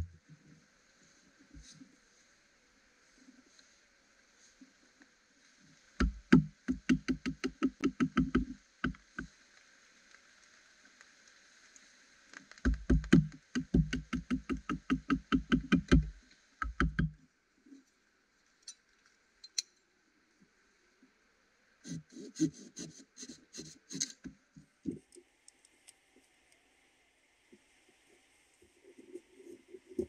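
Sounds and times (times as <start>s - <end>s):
rapid rhythmic knocking: 6.0s - 9.0s, 12.7s - 17.1s.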